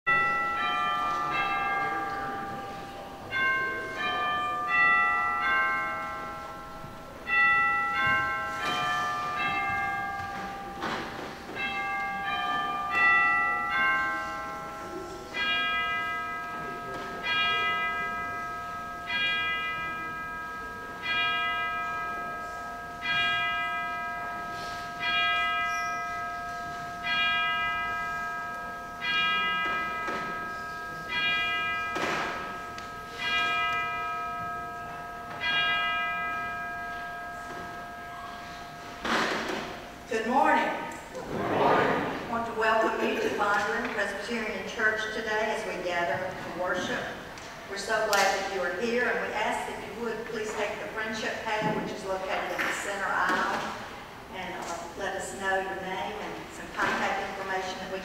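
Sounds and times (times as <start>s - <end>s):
church bells ringing melody: 0.1s - 41.2s, 42.0s - 58.0s.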